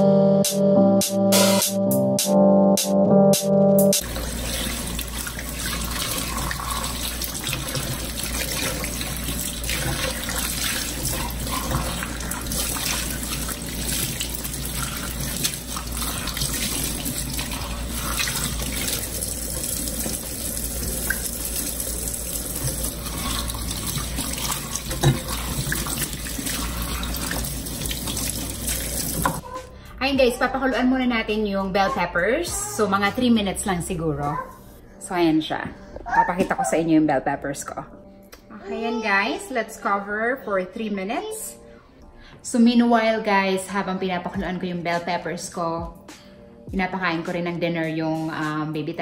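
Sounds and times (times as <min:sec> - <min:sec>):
faucet running into a sink: 0:04.0 - 0:29.4.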